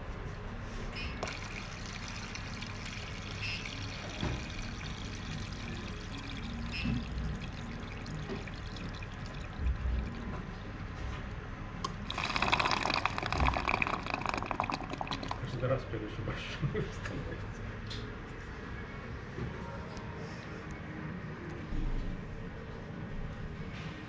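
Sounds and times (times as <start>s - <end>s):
water pouring from tubing: 1.2s - 10.5s, 12.0s - 15.6s.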